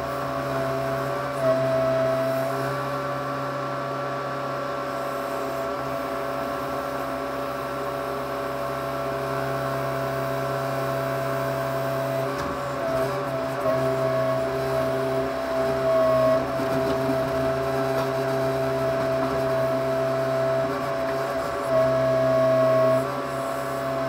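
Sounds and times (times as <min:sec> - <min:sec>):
backhoe engine running: 0:00.0 - 0:24.0.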